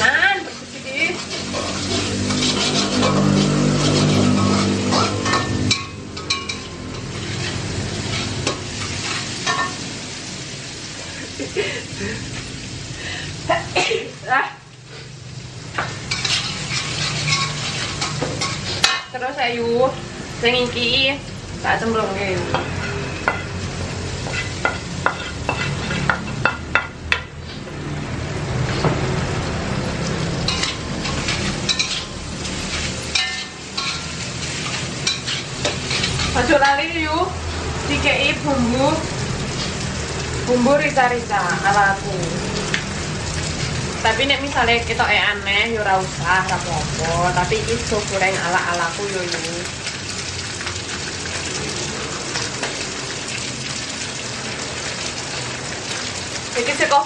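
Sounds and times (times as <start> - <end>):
rice sizzling in a wok: 0.0 - 57.0
spatula scraping a wok: 0.1 - 10.8, 14.9 - 19.2, 22.4 - 27.7, 30.0 - 36.7.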